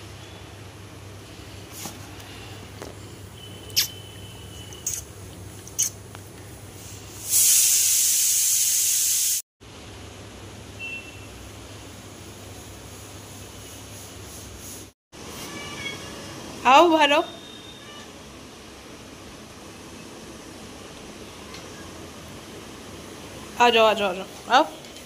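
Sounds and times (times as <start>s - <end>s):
loud steady hiss: 6.9s - 9.4s.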